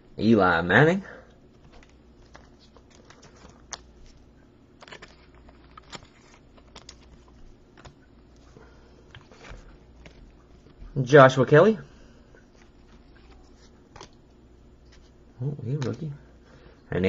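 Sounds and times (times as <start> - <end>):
cards clicking and tapping: 1.5 - 4.2, 4.8 - 8.0, 12.6 - 14.2, 15.7 - 16.1.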